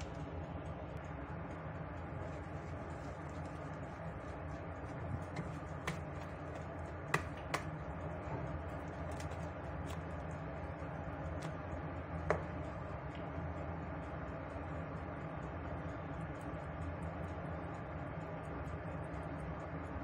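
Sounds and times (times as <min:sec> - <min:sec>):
steady low hum: 0:00.0 - 0:20.0
whisk beating batter: 0:01.1 - 0:13.4
whisk clicking against bowl: 0:02.2 - 0:07.8.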